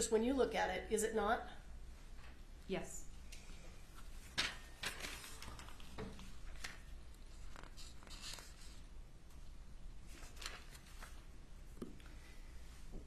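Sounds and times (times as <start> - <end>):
faint room hum: 0.0 - 13.0
paper rustling: 4.0 - 8.9, 10.0 - 12.1.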